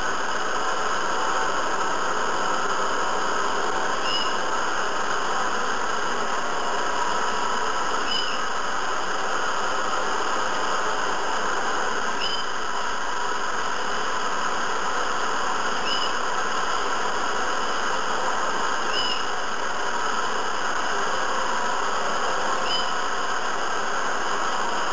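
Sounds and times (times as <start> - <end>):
faint short chirp: 12.2 - 12.5.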